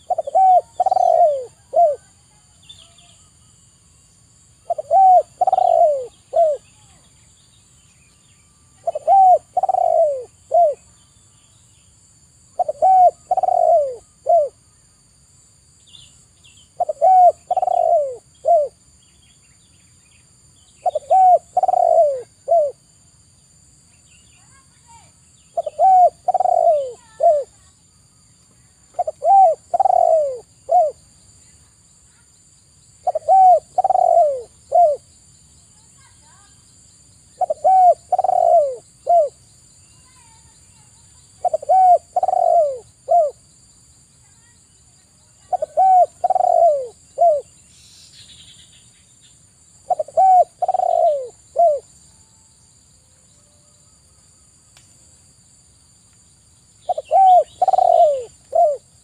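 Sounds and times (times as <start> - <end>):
dove cooing: 0.0 - 2.4, 4.6 - 6.7, 8.8 - 10.9, 12.6 - 14.6, 16.8 - 18.8, 20.8 - 22.8, 25.6 - 27.7, 28.9 - 31.0, 33.0 - 35.1, 37.4 - 39.4, 41.3 - 43.4, 45.4 - 47.5, 49.8 - 51.9, 56.9 - 59.0.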